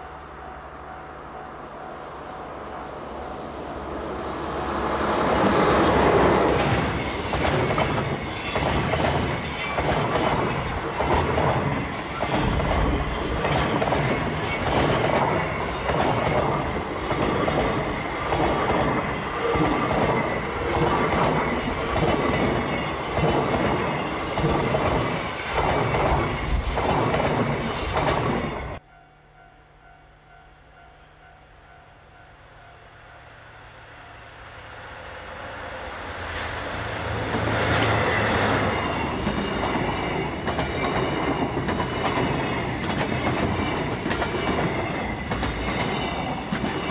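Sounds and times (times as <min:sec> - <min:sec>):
diesel locomotive passing: 0:00.0 - 0:46.9
train wheels clacking over rail joints: 0:05.4 - 0:28.5, 0:36.3 - 0:46.9.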